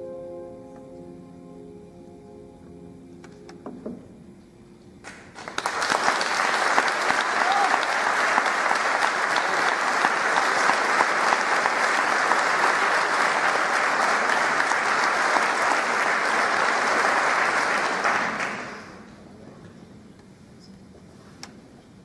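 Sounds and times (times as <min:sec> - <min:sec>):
audience applauding: 0:05.0 - 0:19.1.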